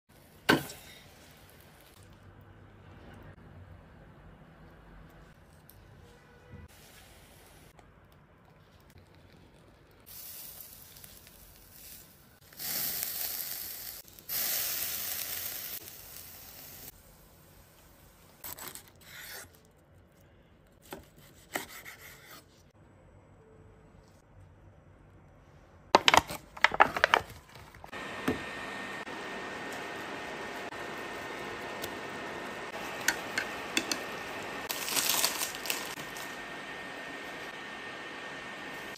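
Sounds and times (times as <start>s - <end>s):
food sizzling: 10.1s - 17.0s, 27.9s - 38.9s.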